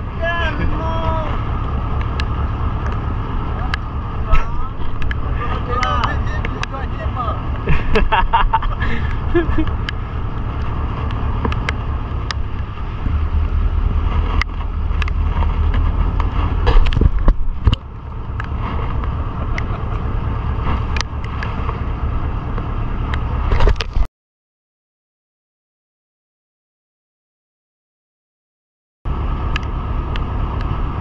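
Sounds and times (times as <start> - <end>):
boat engine running: 0.0 - 24.1, 29.1 - 31.0
wind rumble on microphone: 0.0 - 24.1.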